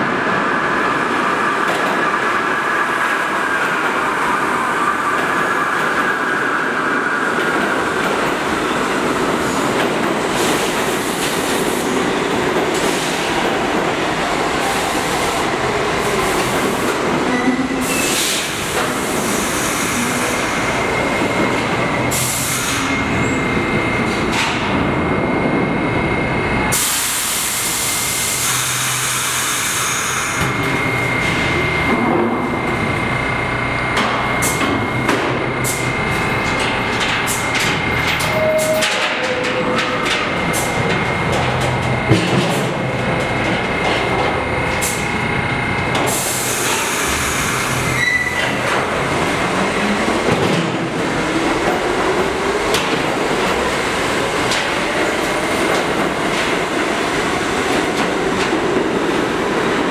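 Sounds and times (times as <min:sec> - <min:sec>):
train wheels rumbling on rail: 0:00.0 - 0:59.9
wheel squeal: 0:38.2 - 0:39.5, 0:47.9 - 0:48.6.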